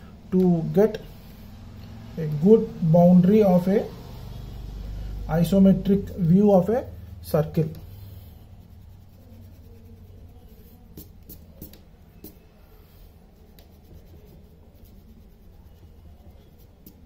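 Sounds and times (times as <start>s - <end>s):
low steady hum: 0.0s - 17.0s
eraser rubbing on paper: 6.8s - 17.0s.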